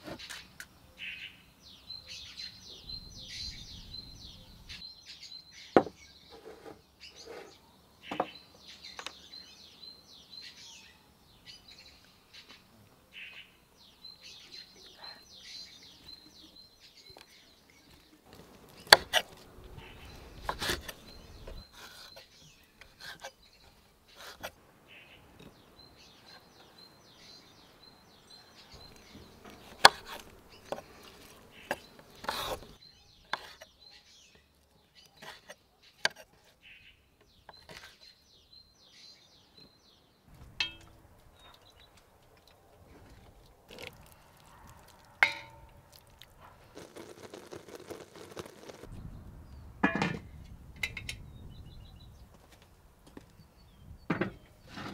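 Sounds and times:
birds chirping faintly: 0.0 - 54.9
knife cutting on wooden board: 32.2 - 32.7.

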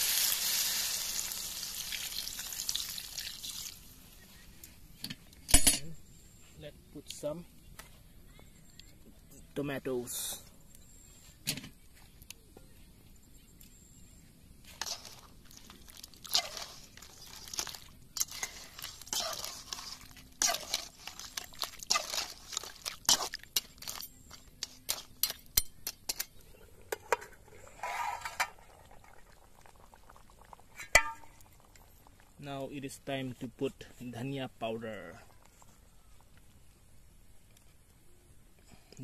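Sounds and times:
metal spoon scraping metal pot: 18.2 - 26.3, 26.9 - 28.6.

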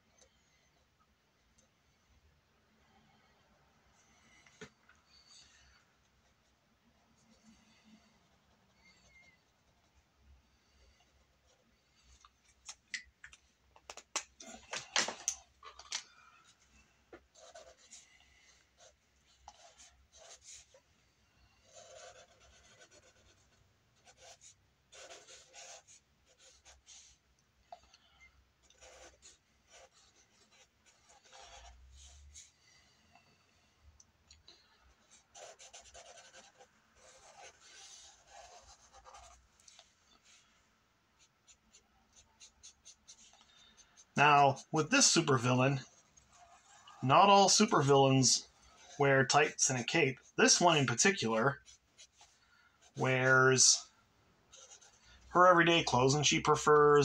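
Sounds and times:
pencil scratching on paper: 6.3 - 12.2, 16.5 - 33.3, 34.9 - 40.5, 41.2 - 53.4, 54.5 - 56.8.

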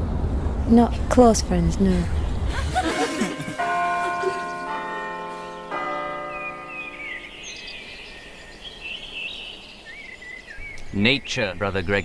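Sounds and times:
bells ringing: 2.7 - 8.6
birds chirping faintly: 3.2 - 12.0.

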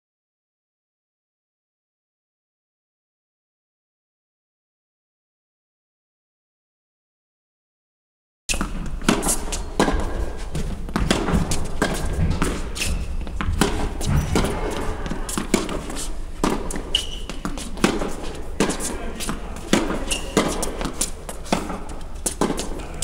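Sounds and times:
shoe squeaks: 8.5 - 10.6, 11.8 - 23.0
footsteps on court: 8.5 - 23.0
tennis ball bounces: 8.5 - 23.0
tennis racquet strikes: 8.5 - 23.0.

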